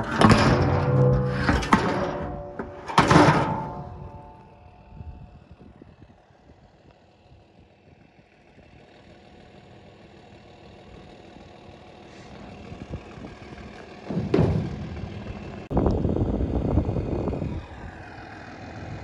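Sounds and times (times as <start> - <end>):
vehicle engine surging: 9.7 - 19.0.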